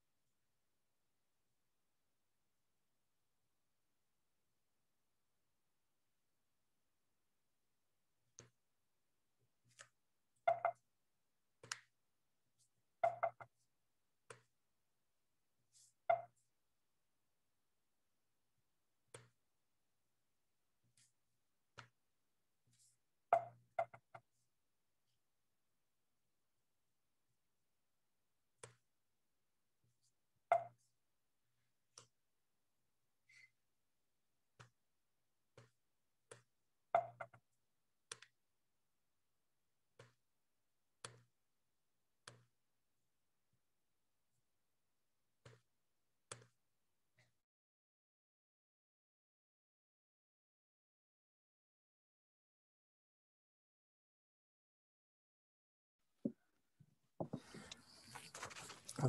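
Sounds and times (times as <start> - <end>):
faint irregular clicks: 42.2 - 42.5, 46.3 - 46.6.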